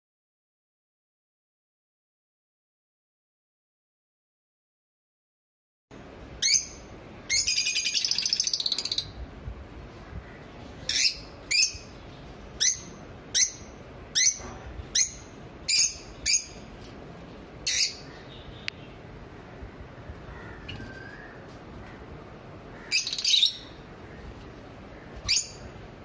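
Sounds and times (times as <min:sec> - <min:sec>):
lovebirds chirping: 0:06.4 - 0:09.2, 0:09.9 - 0:16.9, 0:17.6 - 0:25.9.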